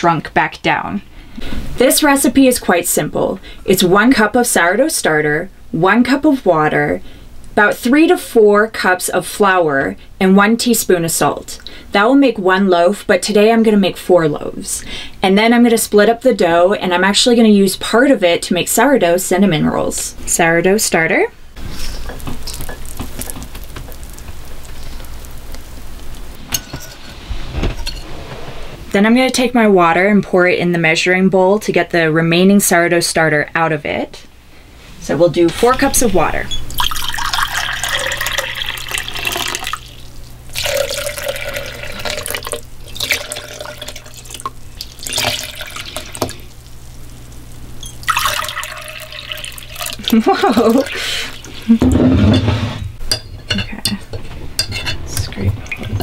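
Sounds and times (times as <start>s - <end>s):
dough squelching: 21.6s - 26.4s
metal clinking on glass: 26.5s - 27.0s
water pouring into a glass bowl: 36.7s - 46.5s, 47.9s - 51.7s
water pouring into a metal cup: 36.7s - 46.5s, 48.0s - 51.7s.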